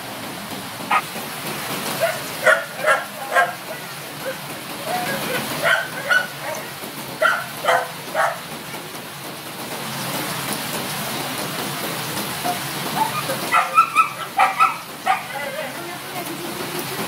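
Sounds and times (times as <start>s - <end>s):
rain hissing: 0.0s - 17.0s
young dogs barking and yipping: 0.9s - 1.2s, 1.9s - 8.5s, 12.5s - 15.8s.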